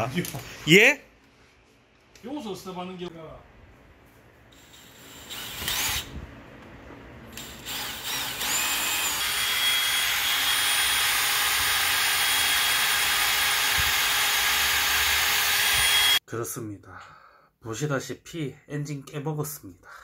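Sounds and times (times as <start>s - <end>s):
cordless drill whining: 4.5s - 6.1s, 7.3s - 16.2s.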